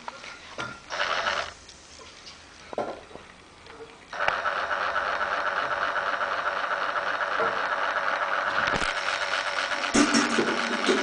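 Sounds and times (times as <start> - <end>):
toy motor whirring plastic gears: 0.9 - 1.6, 4.1 - 11.0.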